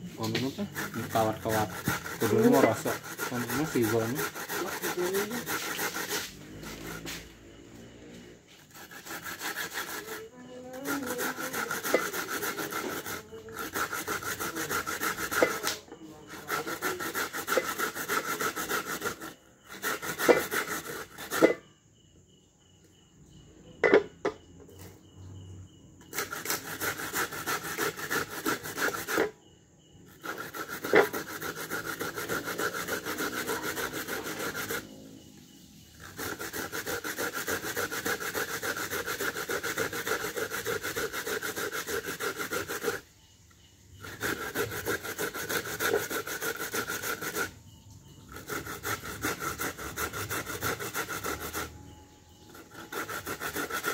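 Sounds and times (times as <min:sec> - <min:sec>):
coconut grating strokes: 0:00.0 - 0:21.7, 0:26.0 - 0:53.9.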